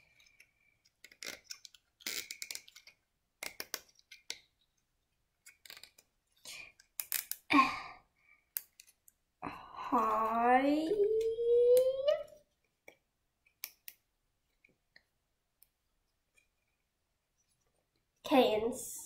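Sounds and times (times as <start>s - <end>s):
zip ties clicking: 0.2s - 4.4s, 6.8s - 7.5s.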